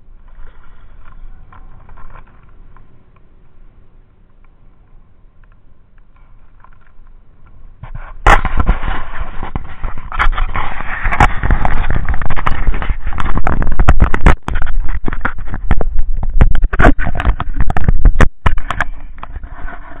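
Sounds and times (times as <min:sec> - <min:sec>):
wind rumbling on microphone: 0:04.4 - 0:20.0
camera handling knocks and scrapes: 0:07.8 - 0:20.0.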